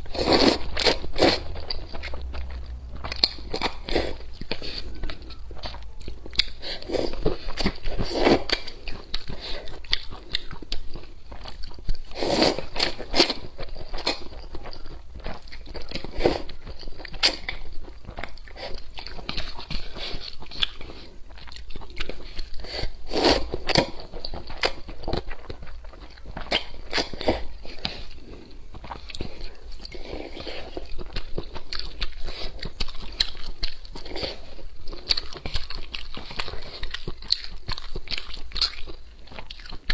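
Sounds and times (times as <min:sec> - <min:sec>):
slurping noodles: 0:00.0 - 0:02.6, 0:06.4 - 0:09.8, 0:12.1 - 0:13.4, 0:22.3 - 0:23.9.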